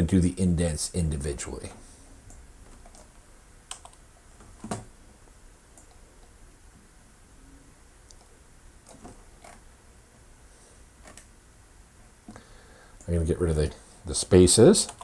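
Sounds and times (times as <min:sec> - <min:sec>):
faint room hiss: 0:00.0 - 0:15.0
computer mouse clicks: 0:02.3 - 0:04.8, 0:05.8 - 0:06.3, 0:08.1 - 0:09.6, 0:11.0 - 0:11.3.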